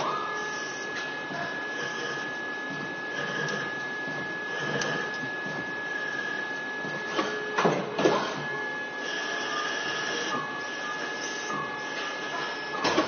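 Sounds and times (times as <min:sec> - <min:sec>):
lathe running with high whine: 0:00.0 - 0:12.8.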